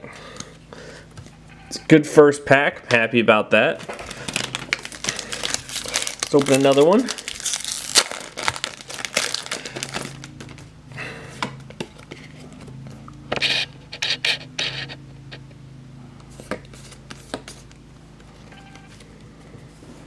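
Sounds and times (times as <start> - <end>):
foil wrapper crinkling: 3.8 - 10.7
cards sliding against each other: 13.3 - 15.0.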